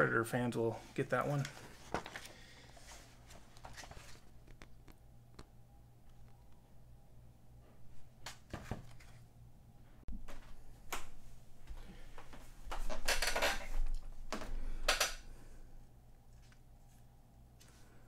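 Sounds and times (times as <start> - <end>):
magazine pages rustling: 1.0 - 5.0.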